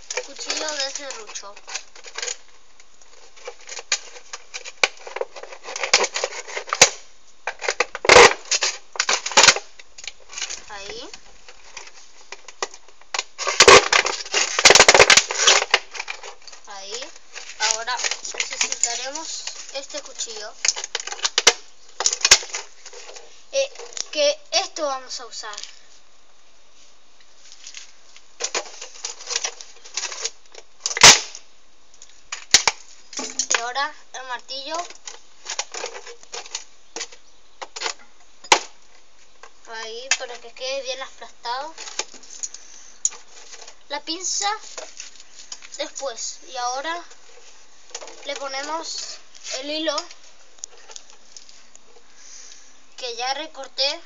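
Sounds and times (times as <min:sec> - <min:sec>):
knife scratching plastic bottle: 0:03.2 - 0:06.9.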